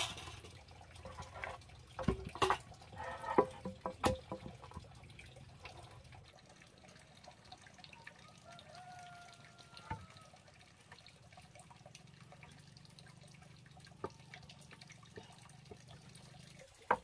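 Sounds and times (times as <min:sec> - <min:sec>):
wooden boards knocking on concrete: 0:03.3 - 0:04.6.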